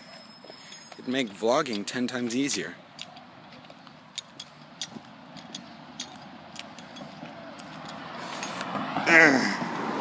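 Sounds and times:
faint outdoor background hum: 0.0 - 9.6
footsteps clicking: 0.5 - 8.7.

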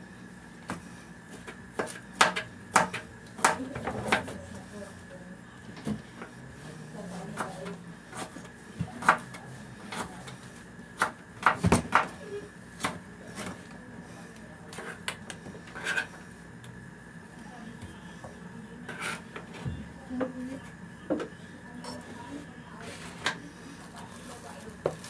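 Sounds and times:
knife chopping on plastic board: 0.6 - 4.3, 7.3 - 10.2, 11.0 - 12.1, 12.8 - 13.5.

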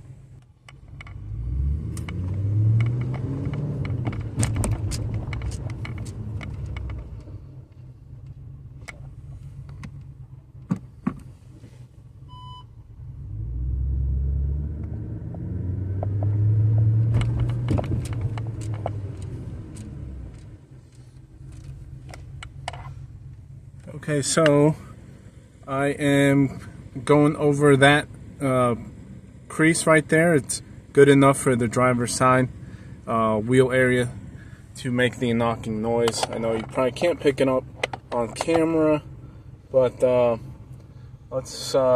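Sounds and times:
car engine revving: 0.7 - 9.6, 12.8 - 41.9
suspension knocking over bumps: 15.9 - 19.2.

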